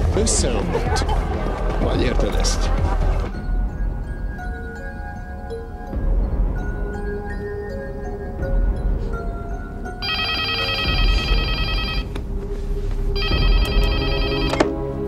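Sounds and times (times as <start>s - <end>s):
background music: 0.0s - 15.0s
telephone ringing: 10.0s - 12.2s, 13.2s - 14.8s.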